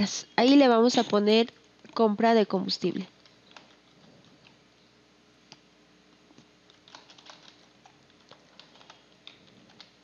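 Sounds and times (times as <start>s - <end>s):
faint keyboard typing: 3.0s - 4.6s, 6.3s - 10.0s.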